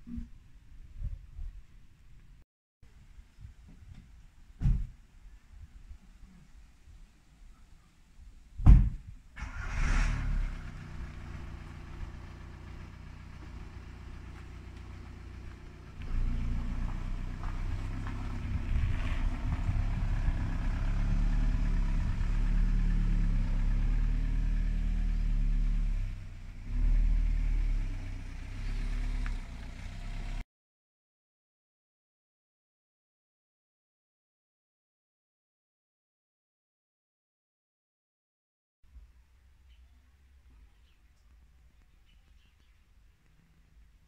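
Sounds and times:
sharp knock: 0:08.6 - 0:09.0
car engine humming: 0:09.4 - 0:30.4.

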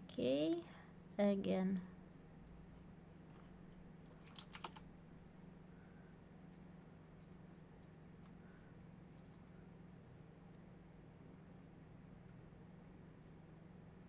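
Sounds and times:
low steady hum: 0:00.0 - 0:14.0
keyboard and mouse clicking: 0:04.2 - 0:04.9, 0:06.5 - 0:08.4, 0:09.1 - 0:09.6.

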